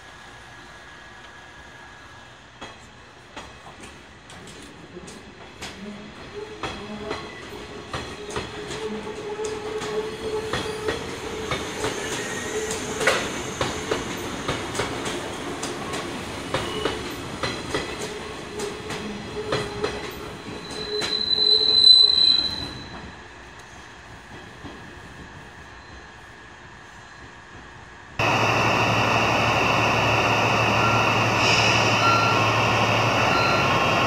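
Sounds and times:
train wheels clicking over joints: 6.6s - 21.4s
high wheel squeal: 20.6s - 23.0s, 30.7s - 34.0s
electric train hum: 26.5s - 34.0s.

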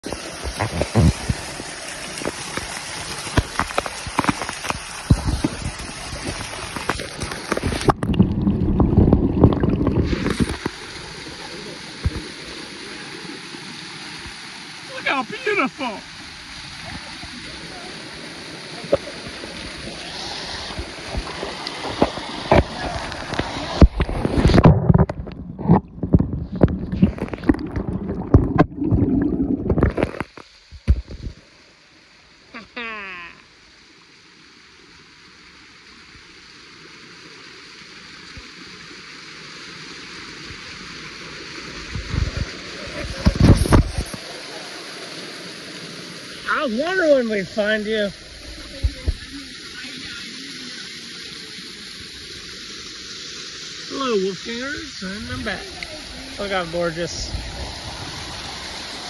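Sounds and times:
microphone buffeting: 0.0s - 1.5s, 3.4s - 10.8s, 19.8s - 31.4s, 41.9s - 44.2s
waterfall splashing on rock: 0.0s - 31.6s, 35.1s - 59.0s.

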